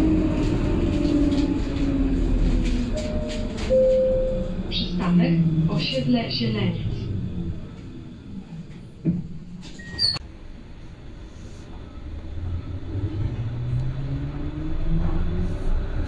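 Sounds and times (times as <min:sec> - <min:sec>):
tram motors whining: 0:00.0 - 0:10.0
short electronic beep: 0:03.0 - 0:04.5.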